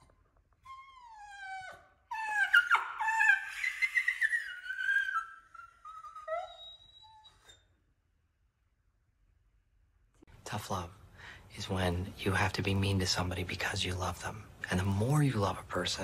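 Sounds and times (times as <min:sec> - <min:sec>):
dog whimpers: 0:00.0 - 0:07.8
dog whining: 0:00.0 - 0:07.9.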